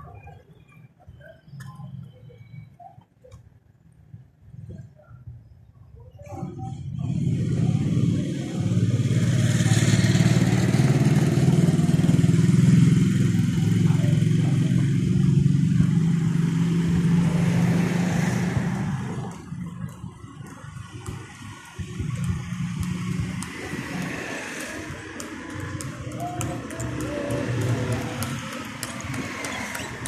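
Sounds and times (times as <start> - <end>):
vehicle engine running: 7.0 - 30.0.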